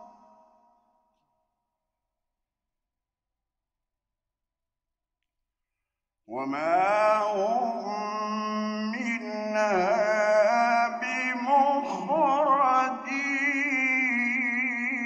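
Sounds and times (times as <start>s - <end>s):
man chanting melodically: 6.3s - 15.0s.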